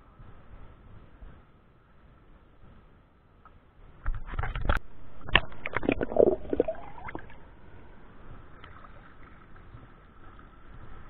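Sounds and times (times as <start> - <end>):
water splashing and sloshing: 4.0 - 11.0.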